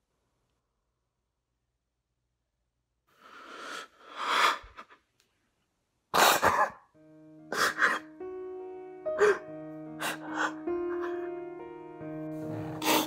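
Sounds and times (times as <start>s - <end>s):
background music with held notes: 6.5s - 13.0s
man sobbing: 9.2s - 11.5s.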